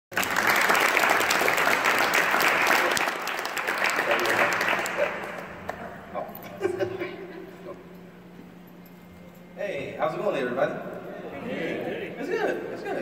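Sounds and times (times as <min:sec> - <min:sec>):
audience applauding: 0:00.1 - 0:05.9.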